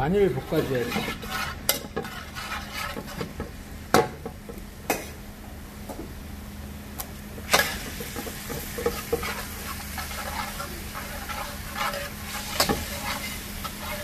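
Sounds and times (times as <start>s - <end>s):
metal spoon scraping wok: 0.2s - 3.4s, 8.5s - 14.0s
garlic sizzling in oil: 7.4s - 14.0s.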